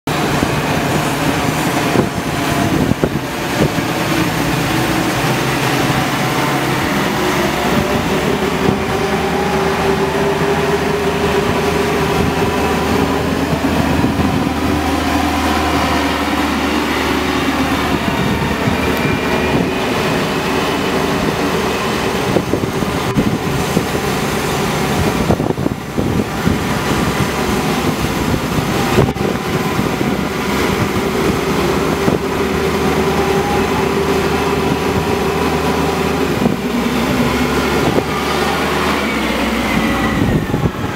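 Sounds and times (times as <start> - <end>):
backhoe loader diesel engines droning: 0.1 - 40.9.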